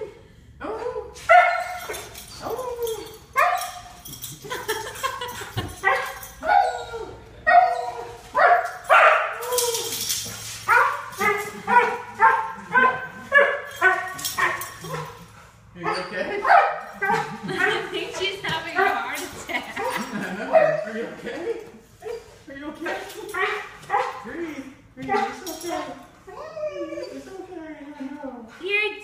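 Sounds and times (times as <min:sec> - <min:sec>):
dog crying and yelping: 0:00.7 - 0:04.3, 0:05.7 - 0:15.3, 0:15.9 - 0:17.8, 0:19.7 - 0:20.9, 0:23.1 - 0:24.1, 0:25.1 - 0:27.5.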